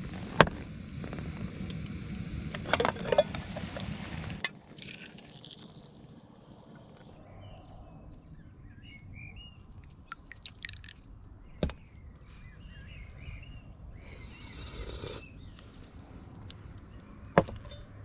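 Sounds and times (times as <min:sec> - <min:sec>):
birds chirping: 0:11.3 - 0:17.8.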